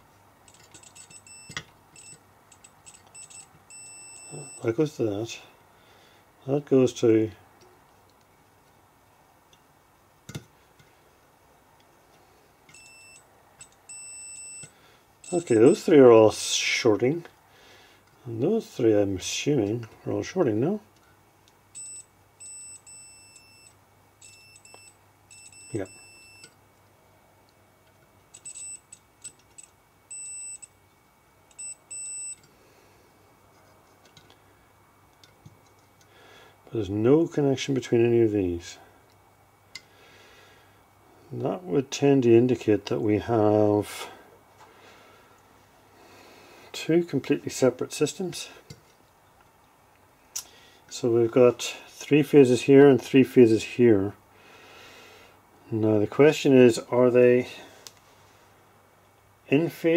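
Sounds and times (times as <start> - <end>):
multimeter high-pitched beeps: 0.5 - 4.7, 12.7 - 15.9, 21.8 - 26.6, 28.3 - 30.8, 31.5 - 32.4
test probe clicks: 31.5 - 32.5.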